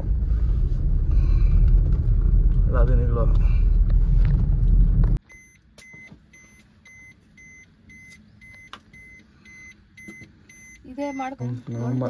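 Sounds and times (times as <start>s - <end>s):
car engine and road rumble: 0.0s - 12.0s
dashboard warning beeps: 5.2s - 12.0s.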